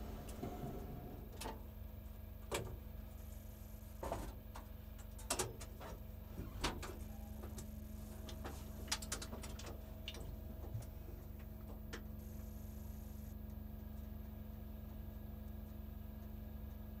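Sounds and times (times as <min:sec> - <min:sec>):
low hum: 0:06.1 - 0:17.0.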